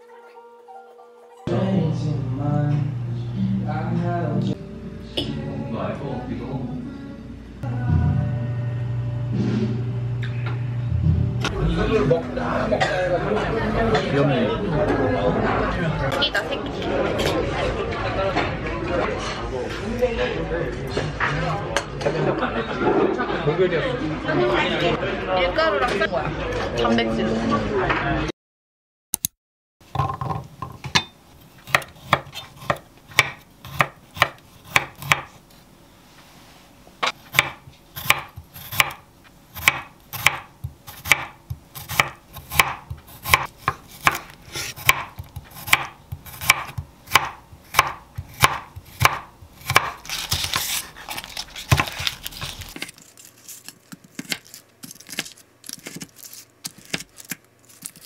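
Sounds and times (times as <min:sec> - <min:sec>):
knife chopping on wooden board: 0:31.6 - 0:35.3, 0:37.0 - 0:39.0, 0:39.6 - 0:50.8, 0:51.6 - 0:52.5
knife cutting frozen bacon: 0:39.6 - 0:58.0.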